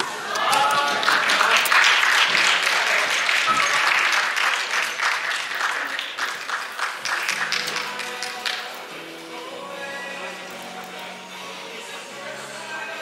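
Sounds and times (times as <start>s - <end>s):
audience applause: 0.0s - 8.9s.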